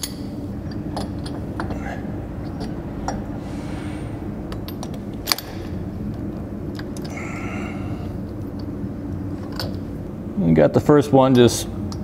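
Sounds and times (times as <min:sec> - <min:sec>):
metal bolts and socket clinking: 0:00.0 - 0:01.7, 0:04.6 - 0:05.7.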